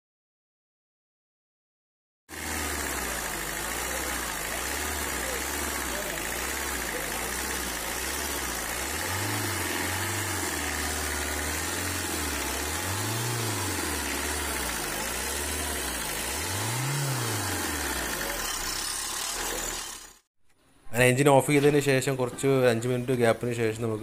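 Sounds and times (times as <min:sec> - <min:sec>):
diesel engine revving: 0:02.3 - 0:20.3.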